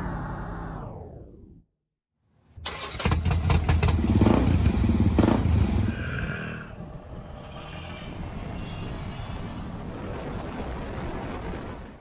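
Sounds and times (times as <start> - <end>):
motorcycle engine revving: 2.7 - 6.0.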